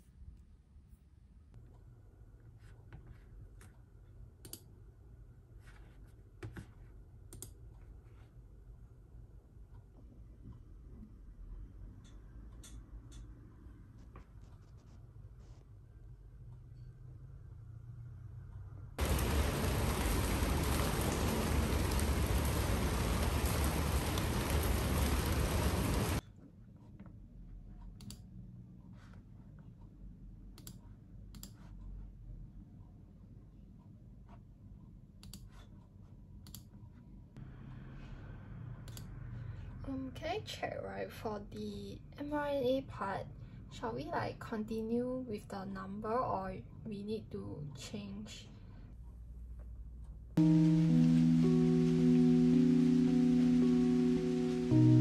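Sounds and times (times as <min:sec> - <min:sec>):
low room hum: 0:00.0 - 0:55.0
rain spattering on surfaces: 0:19.0 - 0:26.2, 0:50.4 - 0:55.0.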